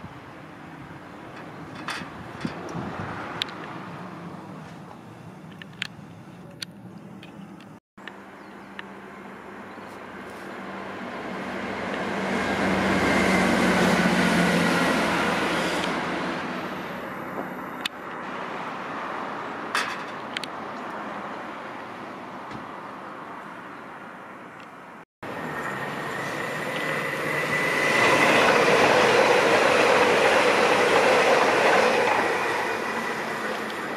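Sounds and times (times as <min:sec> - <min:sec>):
diesel train engine hum: 0:04.0 - 0:19.6, 0:25.2 - 0:33.9
train passing with high whine: 0:08.1 - 0:21.7, 0:25.2 - 0:33.9.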